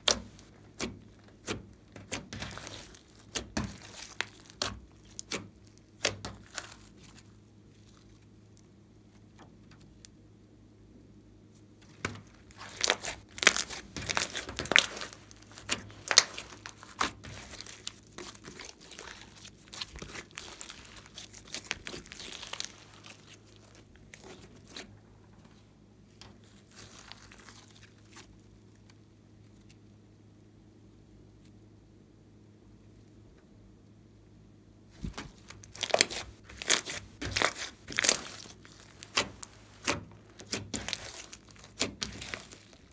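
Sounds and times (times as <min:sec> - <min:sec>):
sticky slime clicks and crunches: 0:12.0 - 0:24.8, 0:35.0 - 0:42.9.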